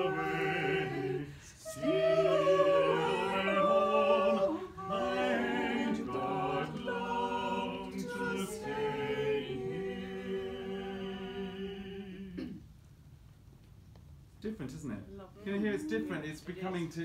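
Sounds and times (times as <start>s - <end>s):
choir singing a cappella: 0.0s - 12.6s.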